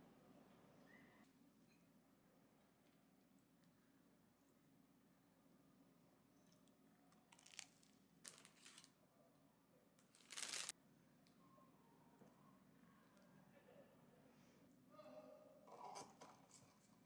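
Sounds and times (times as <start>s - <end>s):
plastic bag crinkling: 7.4s - 8.9s, 10.1s - 10.7s.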